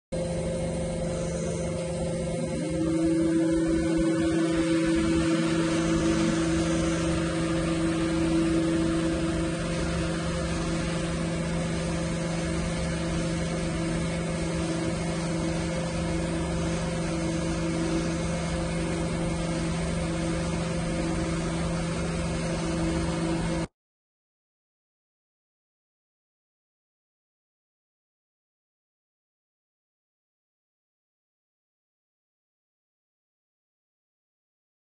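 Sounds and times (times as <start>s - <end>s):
milling machine humming: 0.2s - 23.7s.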